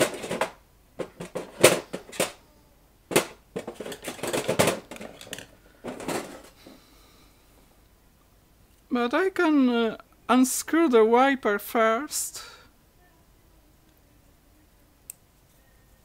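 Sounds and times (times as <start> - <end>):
metal parts clicking and rattling: 0.0 - 2.4, 3.1 - 6.5.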